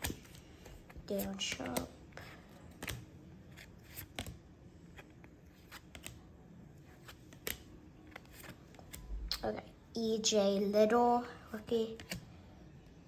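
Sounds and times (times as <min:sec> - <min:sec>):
trading cards being flicked: 0:07.0 - 0:09.4.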